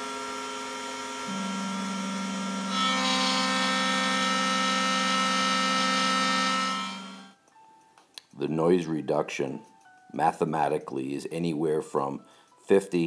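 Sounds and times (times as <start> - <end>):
router spindle whine: 0.0 - 7.3
lower machine tone: 0.0 - 7.4
end mill cutting metal: 1.2 - 7.3.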